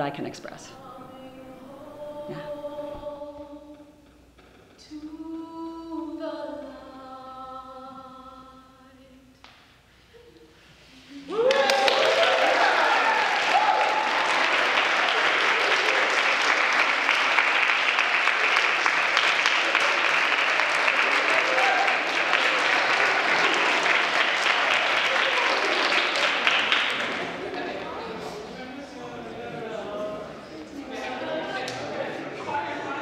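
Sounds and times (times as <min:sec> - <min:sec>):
applause and cheering: 0:11.3 - 0:27.9.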